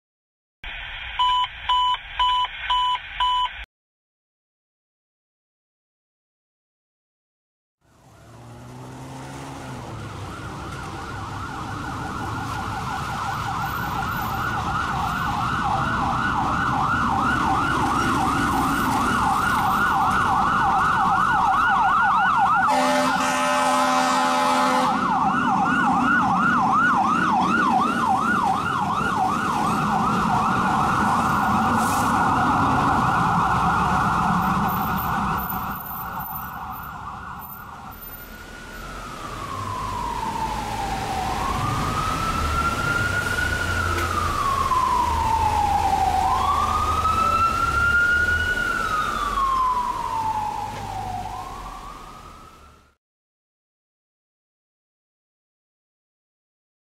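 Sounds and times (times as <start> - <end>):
electronic siren wailing: 9.8 - 52.9
truck horn blast: 22.7 - 25.0.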